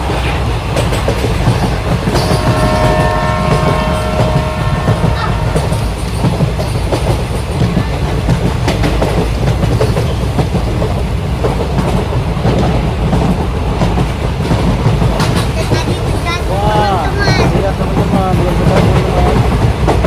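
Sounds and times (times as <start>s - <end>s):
wheels clicking on rails: 0.0s - 20.0s.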